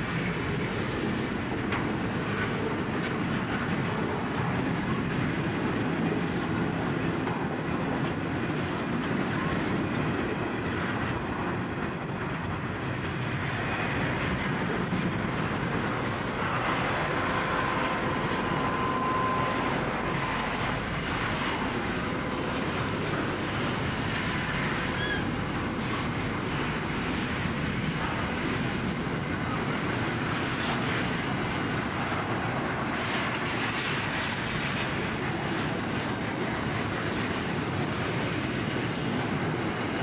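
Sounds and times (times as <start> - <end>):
train wheels rumbling on rails: 0.0 - 40.0
faint thin wheel squeal: 0.5 - 0.8, 1.7 - 2.2, 18.5 - 20.5, 29.6 - 29.8.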